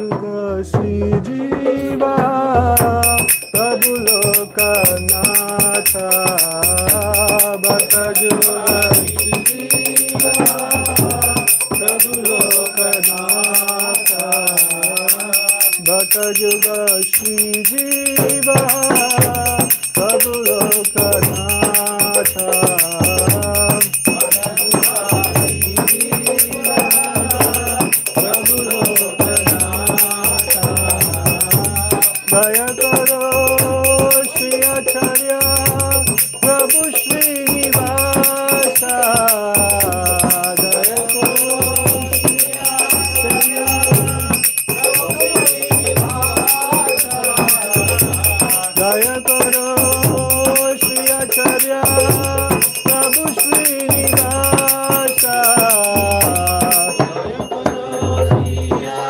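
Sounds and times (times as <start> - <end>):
voices singing: 0.0 - 59.0
hand cymbals jingling: 2.8 - 59.0.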